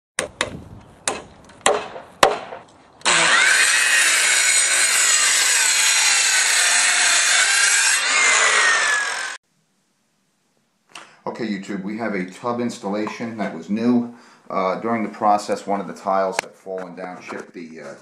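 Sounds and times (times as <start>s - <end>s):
sharp knocks: 0.2s - 2.7s
power saw cutting: 3.0s - 9.4s.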